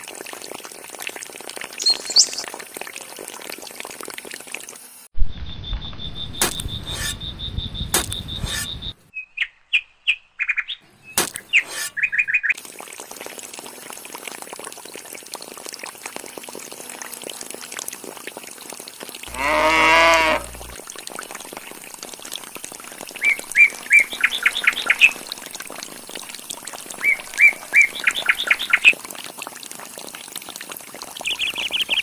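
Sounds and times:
bird chirps: 0:01.8 - 0:02.4, 0:05.3 - 0:12.5
water gushing and splashing: 0:12.6 - 0:32.0
cow mooing: 0:19.3 - 0:20.8.

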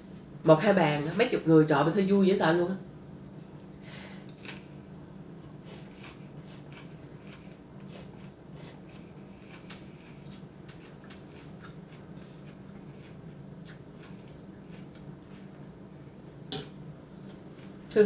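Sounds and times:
steady low hum: 0:00.0 - 0:18.0
chewing noises: 0:03.4 - 0:16.4.

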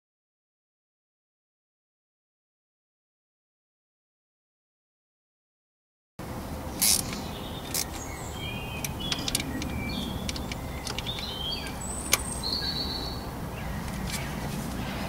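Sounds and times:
birds chirping: 0:06.2 - 0:15.0
small ratchet clicking: 0:06.8 - 0:08.1, 0:08.8 - 0:11.4.

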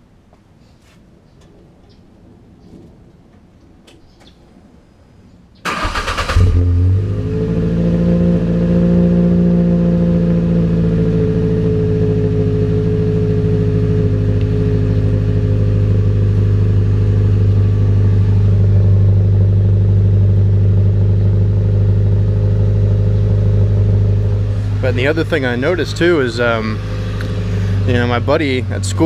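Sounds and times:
pickup engine idling at exhaust: 0:06.5 - 0:29.0.

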